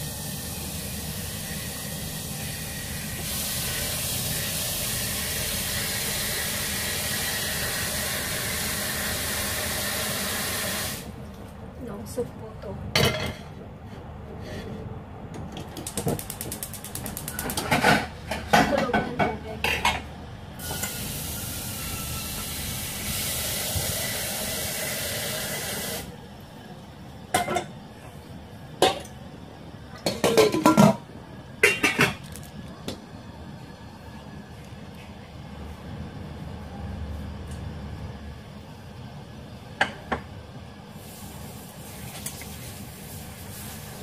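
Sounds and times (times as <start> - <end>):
pot and lids clattering: 30.0 - 31.0, 31.6 - 32.3
steady hiss: 40.7 - 44.0.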